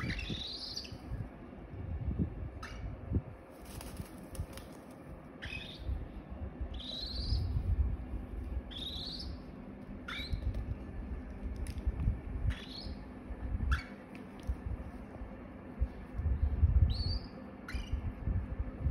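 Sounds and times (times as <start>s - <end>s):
baby cockatiels chirping: 0.0s - 0.9s, 17.0s - 18.0s
low rumbling noise: 0.0s - 18.9s.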